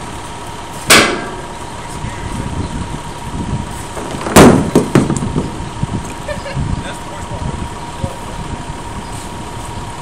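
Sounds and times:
knocks on steel frame: 0.9 - 1.4, 4.0 - 5.5
loud bang on steel frame: 0.9 - 1.5, 4.0 - 5.5.

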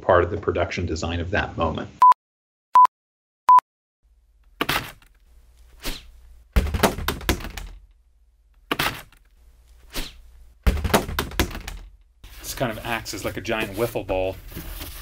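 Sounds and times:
thrown objects thudding: 5.8 - 7.9, 8.6 - 9.2, 9.8 - 12.0.

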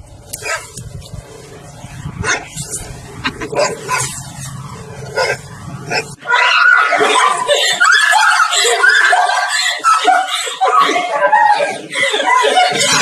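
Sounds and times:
dog barking: 0.4 - 0.8, 3.4 - 4.2, 5.1 - 6.2.

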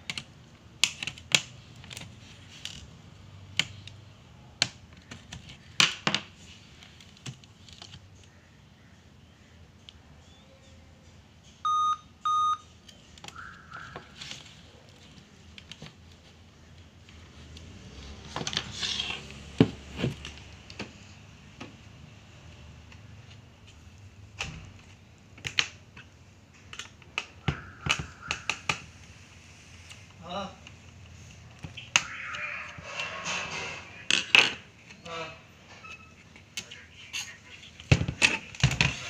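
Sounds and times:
short electronic beeps: 11.6 - 12.7.

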